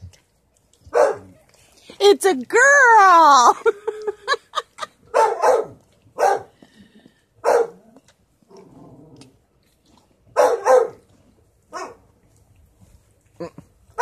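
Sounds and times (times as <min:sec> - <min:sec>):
dog barking: 0:00.9 - 0:01.3, 0:05.1 - 0:06.5, 0:07.4 - 0:07.8, 0:10.3 - 0:11.0, 0:11.7 - 0:12.0.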